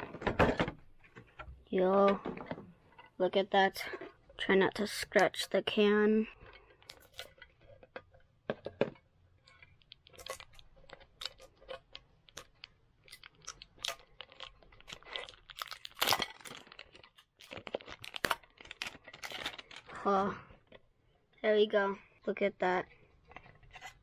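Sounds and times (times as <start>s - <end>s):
plastic wrap crinkling: 9.3s - 20.8s.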